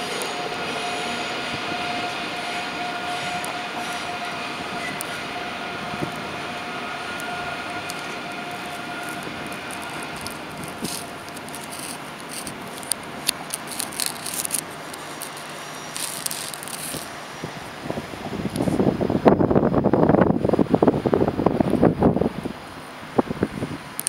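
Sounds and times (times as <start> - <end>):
electric train whine and rumble: 0.0 - 24.0
sharp clicks and ticks: 7.2 - 17.1.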